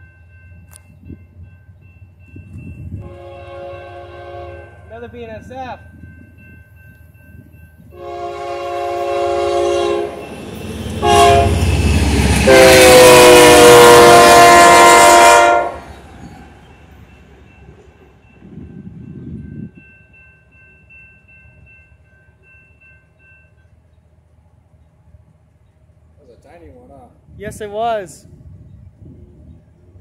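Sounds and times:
low rumble of train passing: 0.0 - 30.0
locomotive air horn blasts: 3.0 - 4.9, 7.9 - 10.3, 11.0 - 11.7, 12.3 - 15.9.

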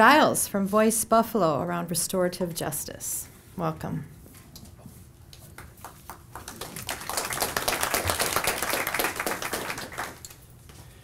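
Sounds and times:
audience applauding: 5.6 - 10.4.

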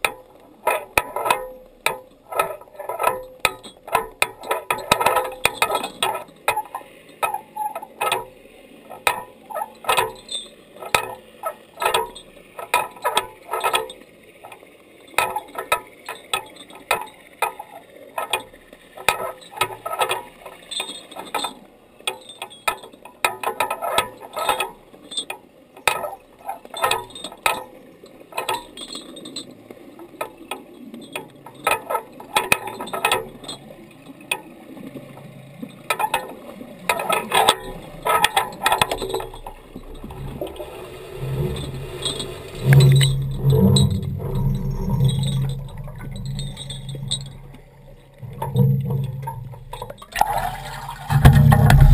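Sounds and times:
underwater clicking: 25.8 - 51.9.

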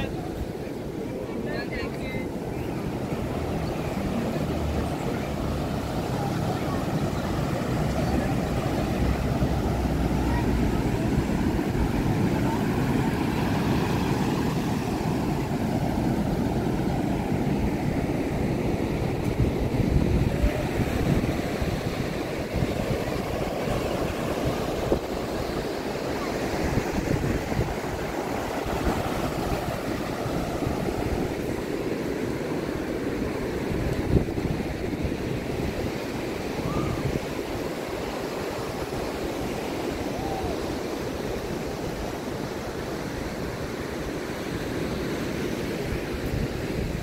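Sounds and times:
surf breaking on beach: 0.0 - 47.0
wind gusting on microphone: 0.0 - 47.0.

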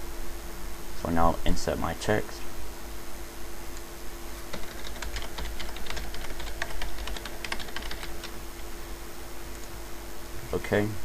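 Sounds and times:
typing on keyboard: 4.5 - 8.4.

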